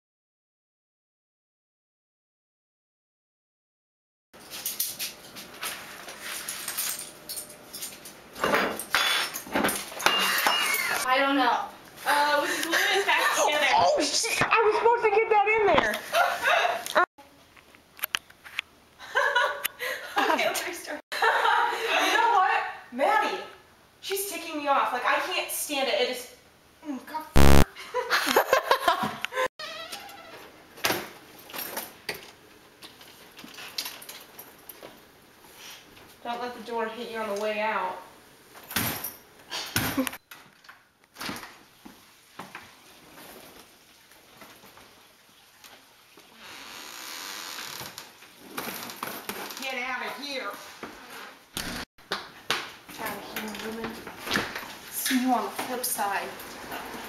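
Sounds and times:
woman laughing: 12.4s - 15.0s, 16.0s - 17.1s, 19.0s - 22.3s, 27.8s - 29.5s
wheeled suitcase rolling on floor: 48.4s - 49.8s, 56.2s - 57.0s.

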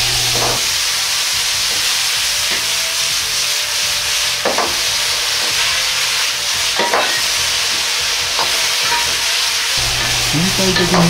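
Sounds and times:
sauce sizzling in a wok: 0.0s - 11.0s
metal ladle striking wok: 4.4s - 5.8s, 6.7s - 11.0s.

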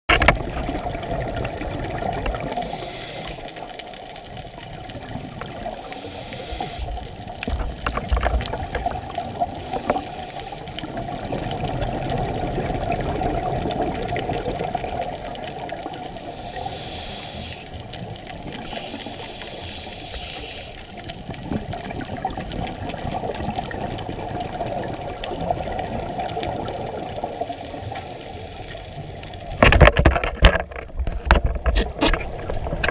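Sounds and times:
muffled underwater wash: 0.6s - 2.6s, 4.7s - 14.1s, 23.7s - 29.7s
regulator breaths hissing: 16.3s - 17.7s, 18.4s - 21.0s.

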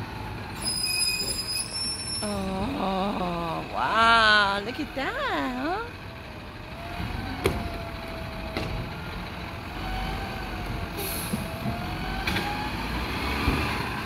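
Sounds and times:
garbage truck engine idling: 2.3s - 12.0s.

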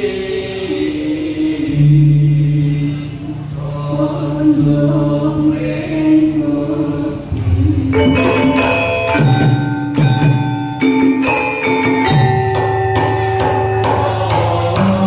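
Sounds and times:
voices chanting together: 0.0s - 8.5s, 13.7s - 15.0s
metallophones struck in rhythm: 7.2s - 15.0s
drum beats: 7.3s - 15.0s.

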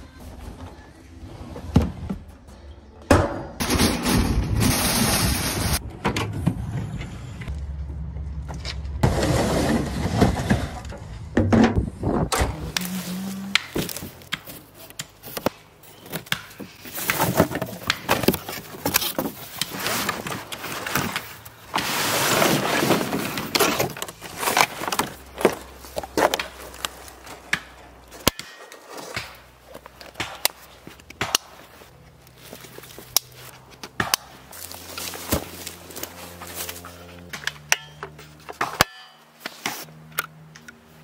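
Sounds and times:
cardboard sliding and scraping: 9.0s - 10.9s, 16.8s - 26.4s.

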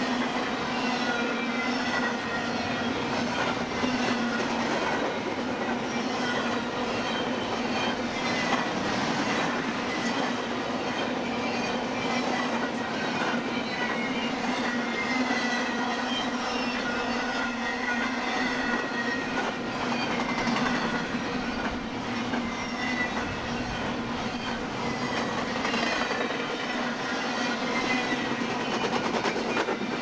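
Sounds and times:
freight train wheels rumbling: 0.0s - 30.0s
high-pitched wheel squeals: 22.4s - 28.9s.

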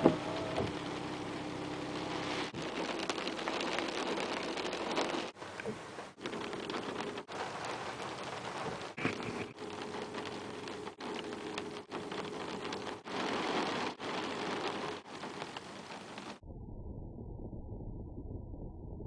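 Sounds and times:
steady rain falling: 0.0s - 16.4s.

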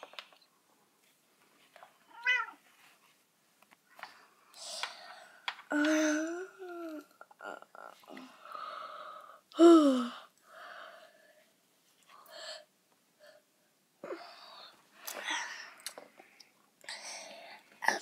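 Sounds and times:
person breathy vocal sounds: 5.7s - 10.3s.

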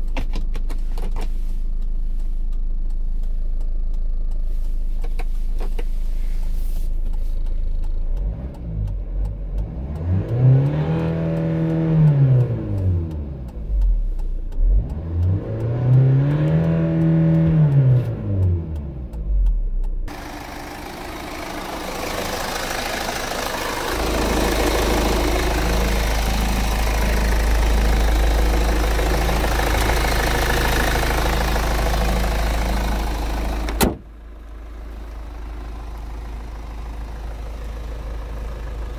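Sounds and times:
diesel engine revving and idling: 0.0s - 38.9s
car bonnet shutting: 33.6s - 34.1s.

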